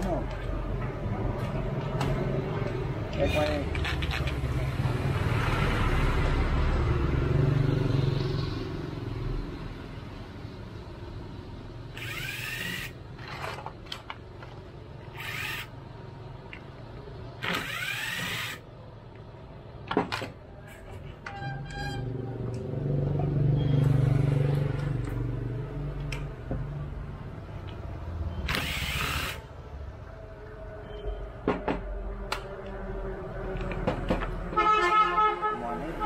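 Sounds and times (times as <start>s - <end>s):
electric drill whining: 12.0s - 13.0s, 15.1s - 15.7s, 17.4s - 18.6s, 28.5s - 29.4s.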